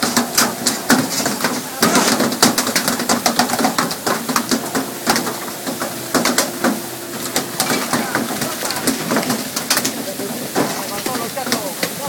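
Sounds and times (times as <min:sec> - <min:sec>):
sharp knocks and slaps: 0:00.0 - 0:11.7
sea water splashing: 0:00.0 - 0:12.0.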